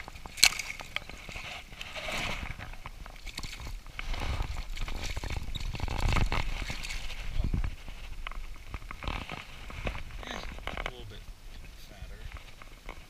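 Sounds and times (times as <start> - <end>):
water splashing and sloshing: 0.0 - 11.5
knocks and rubbing on microphone: 4.1 - 11.2.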